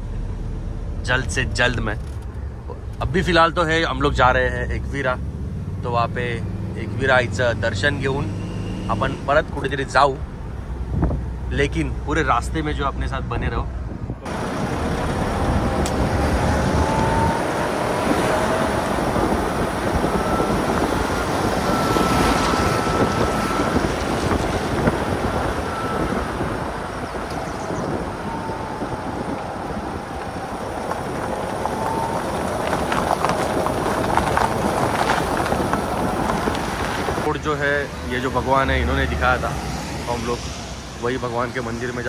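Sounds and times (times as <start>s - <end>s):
car wind and road noise: 0.0s - 42.0s
faint whine: 14.1s - 34.5s.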